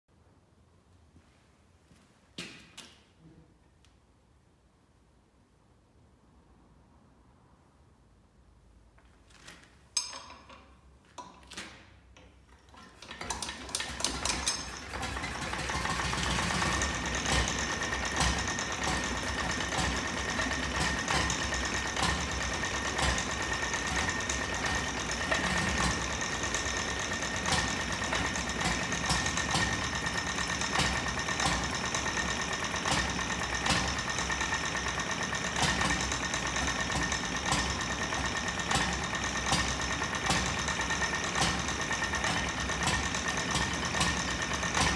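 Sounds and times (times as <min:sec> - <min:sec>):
hand crank clicks: 0:11.2 - 0:29.8
stationary engine running clatter: 0:13.0 - 0:44.9.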